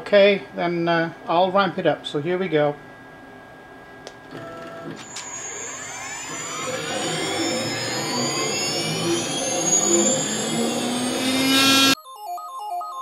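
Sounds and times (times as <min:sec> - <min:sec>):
electric spindle whine spinning up: 0:04.9 - 0:12.0.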